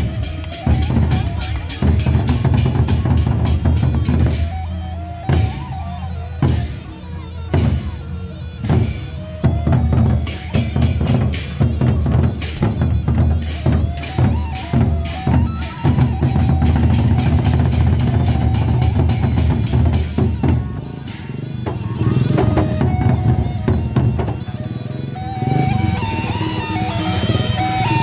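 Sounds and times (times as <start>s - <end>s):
barrel drums beaten with sticks: 0.0s - 4.6s, 8.6s - 24.4s.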